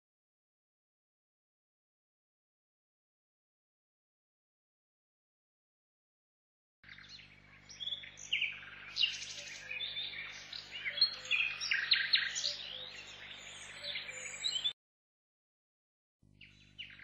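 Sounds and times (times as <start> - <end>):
songbirds chirping: 6.8 - 14.8, 16.4 - 17.0.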